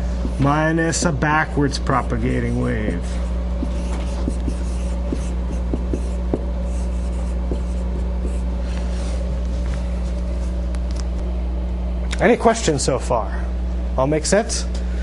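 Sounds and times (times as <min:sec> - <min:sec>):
low room hum: 0:00.0 - 0:15.0
marker writing on whiteboard: 0:02.1 - 0:09.0.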